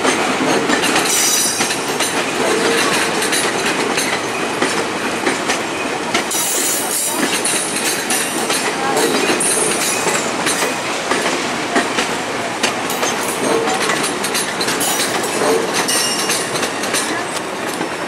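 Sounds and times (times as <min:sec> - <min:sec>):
train wheels clicking over rail joints: 0:00.0 - 0:18.0.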